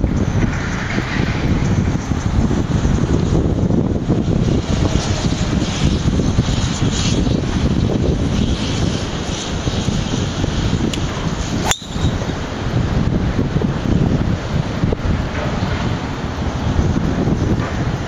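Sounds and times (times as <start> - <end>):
wind buffeting microphone: 0.0 - 18.0
golf driver striking ball: 11.6 - 12.2.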